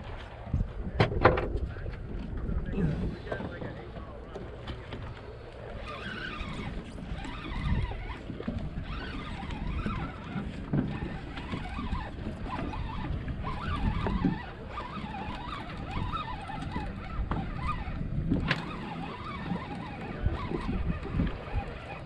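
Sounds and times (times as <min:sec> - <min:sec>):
low rumble and rush: 0:00.0 - 0:05.8.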